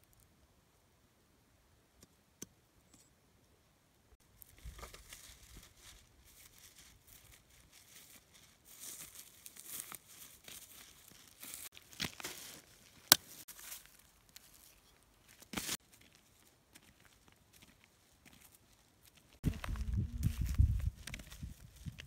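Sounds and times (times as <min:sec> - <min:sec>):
footsteps crunching through straw: 0:04.4 - 0:22.0.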